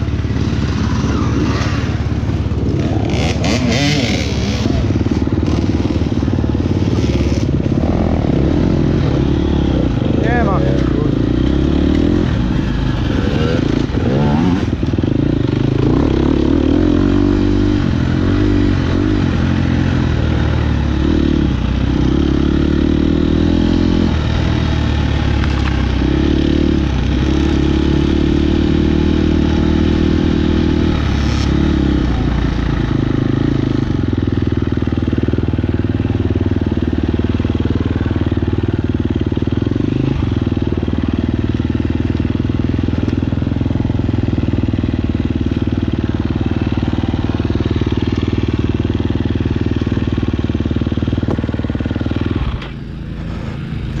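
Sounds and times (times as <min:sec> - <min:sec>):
motorcycle engine under load: 0:00.0 - 0:54.0.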